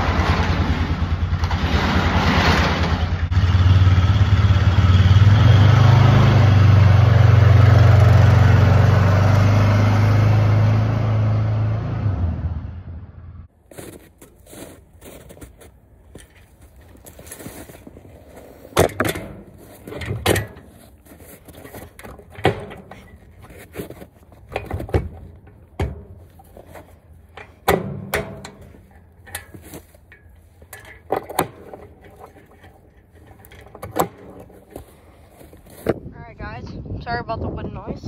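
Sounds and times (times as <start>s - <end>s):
metal clanks and scrapes: 13.7s - 36.0s
wind rumble on microphone: 35.7s - 38.0s.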